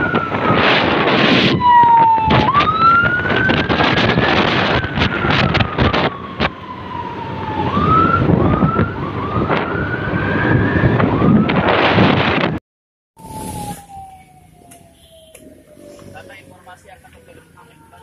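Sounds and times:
road noise: 0.0s - 12.6s, 13.2s - 18.0s
wind buffeting microphone: 0.0s - 12.6s.

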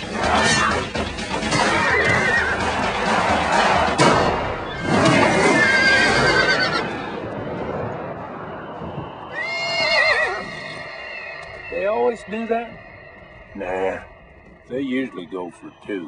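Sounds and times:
horses whinnying: 0.0s - 2.8s, 4.6s - 7.2s, 9.3s - 14.5s
music: 0.0s - 5.7s.

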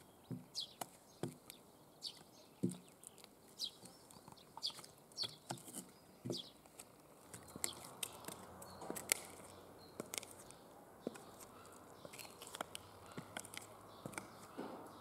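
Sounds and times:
high heels clicking on concrete: 5.5s - 14.9s.

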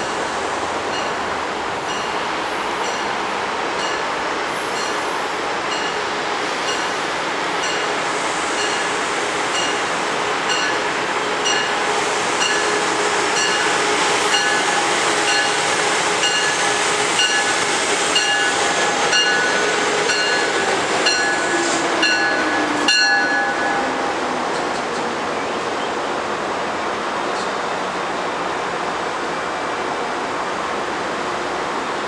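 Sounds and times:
train bell dinging: 0.0s - 2.2s, 3.8s - 4.1s, 4.7s - 7.0s, 7.6s - 8.0s, 8.6s - 8.9s, 9.5s - 9.9s, 10.5s - 17.6s, 18.2s - 24.0s
train rumble: 0.0s - 32.0s.

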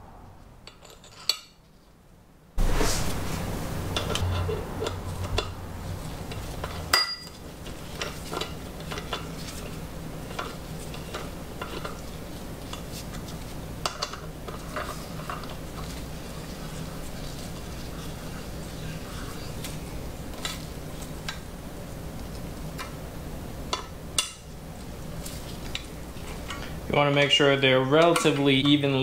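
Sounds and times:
metal tools clinking: 0.7s - 1.6s.

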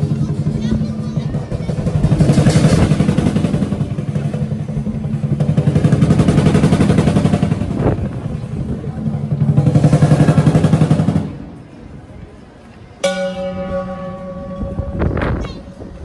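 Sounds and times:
lion dance drum roll: 0.0s - 11.5s
cymbals crashing: 13.0s - 16.0s.

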